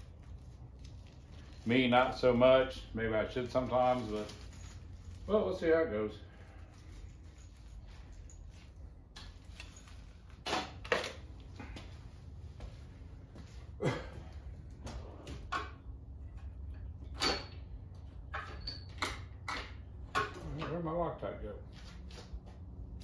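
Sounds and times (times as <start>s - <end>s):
knocks and clinks of tools: 15.3s - 20.8s.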